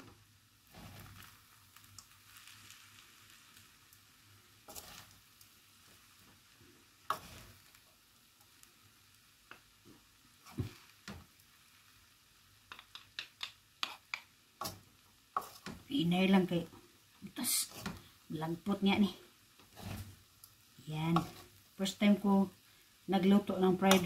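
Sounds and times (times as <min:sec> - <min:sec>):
rice sizzling in a wok: 0:00.0 - 0:24.0
utensils scraping and knocking pan: 0:04.7 - 0:05.1, 0:15.4 - 0:15.8, 0:17.7 - 0:18.0, 0:19.6 - 0:20.2, 0:21.1 - 0:21.5.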